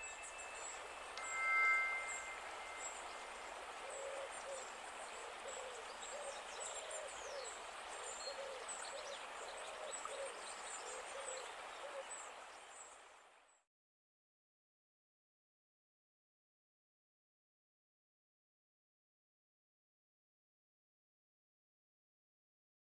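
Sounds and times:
chime ringing: 0.0s - 3.6s
faint high chirps: 0.0s - 4.3s
outdoor ambience hiss: 0.0s - 13.7s
low hooting bird calls: 0.1s - 12.1s.

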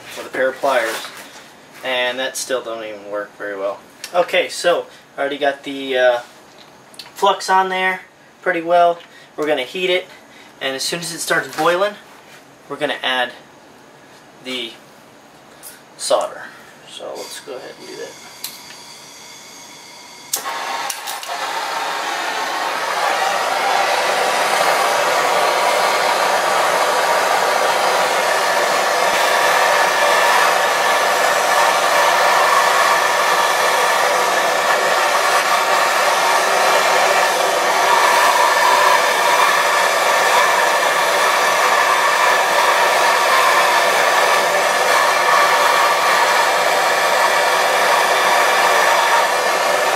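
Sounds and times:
propane torch hissing: 20.3s - 49.9s.

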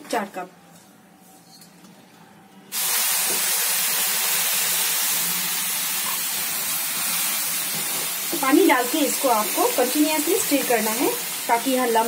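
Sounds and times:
water hissing in hot pan: 2.7s - 12.0s.

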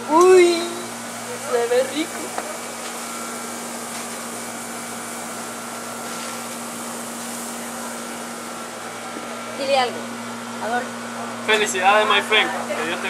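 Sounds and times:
steady hum with hiss: 0.0s - 13.0s.

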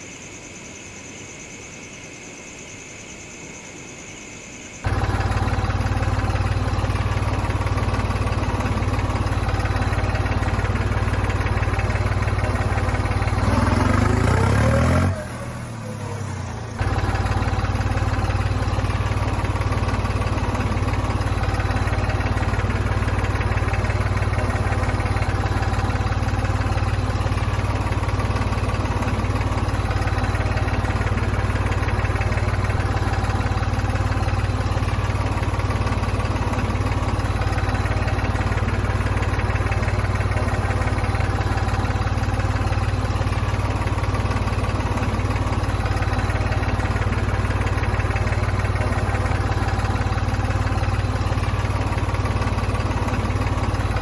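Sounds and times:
engine idling: 4.7s - 54.0s.

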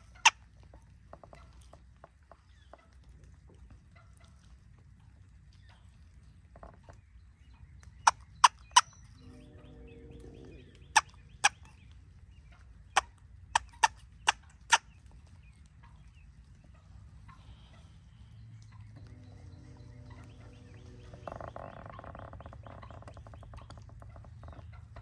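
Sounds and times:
turkey hen calling: 0.0s - 0.4s, 7.9s - 25.0s
low turkey gobble: 8.0s - 14.9s, 15.8s - 25.0s.

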